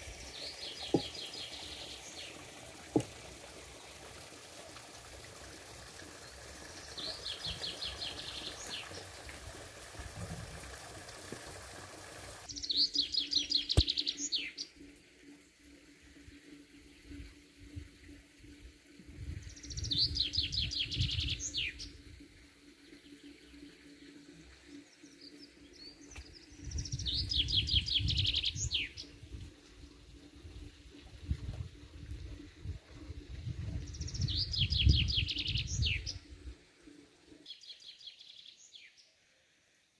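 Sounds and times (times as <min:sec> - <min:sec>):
songbird singing: 0:00.0 - 0:02.5, 0:06.2 - 0:09.1, 0:12.5 - 0:14.8, 0:19.4 - 0:22.0, 0:24.8 - 0:29.2, 0:33.8 - 0:36.3.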